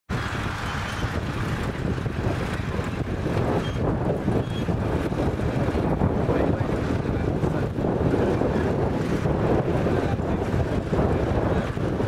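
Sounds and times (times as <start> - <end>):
crawler tractor engine running: 0.1 - 12.0.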